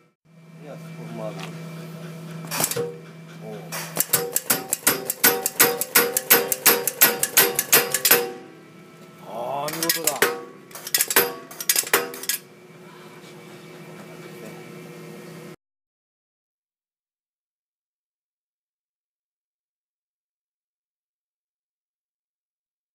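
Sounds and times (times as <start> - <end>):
machine hum: 0.0 - 15.6
air hammer striking steel: 2.5 - 3.0, 3.7 - 8.6, 9.7 - 12.4.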